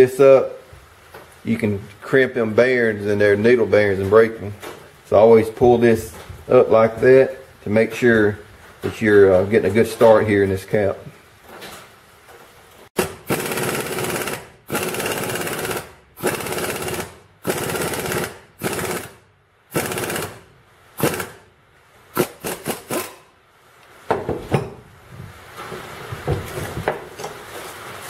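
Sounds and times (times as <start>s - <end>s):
impact wrench hammering: 13.0s - 21.5s, 22.1s - 23.3s.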